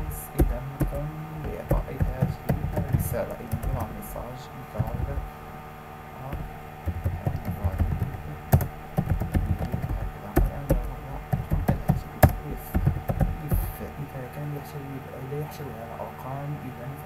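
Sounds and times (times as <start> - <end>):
keyboard typing: 0.0 - 4.2, 4.8 - 5.3, 6.3 - 13.9
steady low hum: 0.0 - 17.0.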